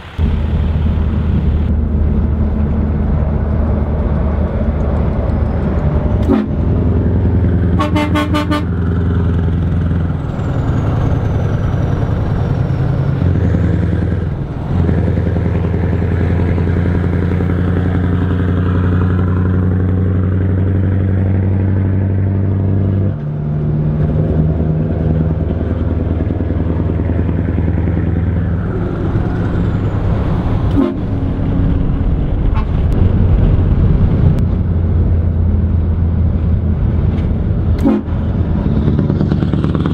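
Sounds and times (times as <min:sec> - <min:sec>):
truck engine drone: 0:00.0 - 0:39.9
pulsing horn: 0:06.2 - 0:09.1, 0:28.5 - 0:31.8, 0:37.8 - 0:38.4.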